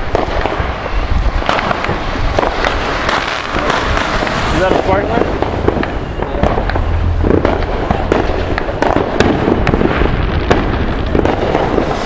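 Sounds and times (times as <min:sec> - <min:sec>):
firecrackers popping and banging: 0:00.0 - 0:12.0
rumble of distant explosions: 0:00.0 - 0:12.0.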